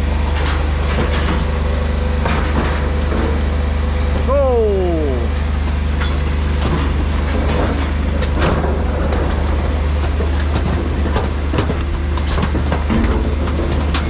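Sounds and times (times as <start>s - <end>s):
truck engine and hydraulics humming: 0.0s - 14.0s
rubbish knocking and clattering: 6.6s - 14.0s.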